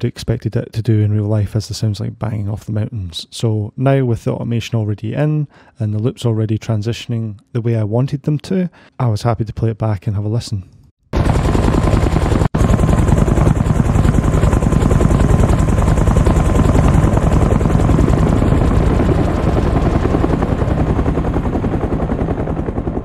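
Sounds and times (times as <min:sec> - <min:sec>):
helicopter rotor beating: 0:11.2 - 0:23.0.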